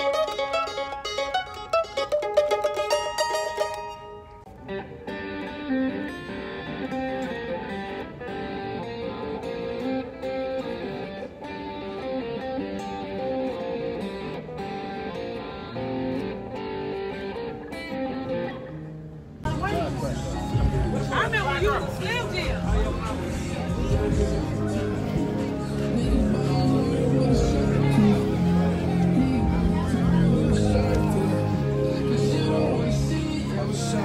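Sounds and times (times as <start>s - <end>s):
electric guitar playing: 0.0s - 34.0s
mandolin plucked notes: 0.0s - 34.0s.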